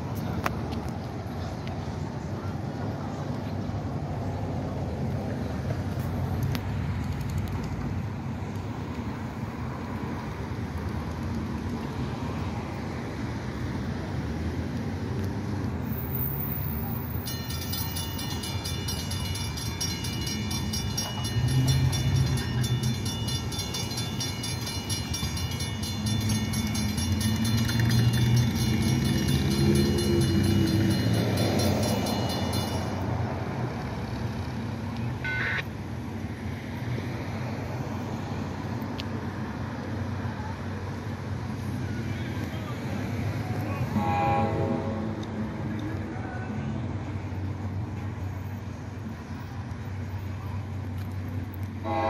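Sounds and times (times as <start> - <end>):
train rumble: 14.1 - 35.2
crossing warning bell ringing: 15.9 - 34.5, 35.2 - 35.6.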